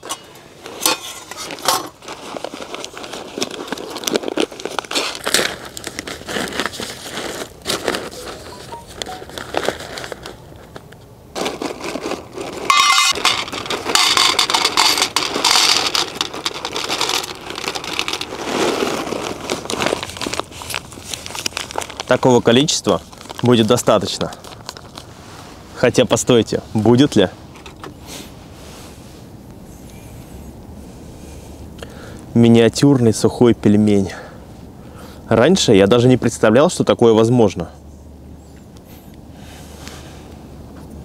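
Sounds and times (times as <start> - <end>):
plastic bag crinkling: 0.7 - 25.2
dried pasta rattling into metal pan: 11.4 - 20.2.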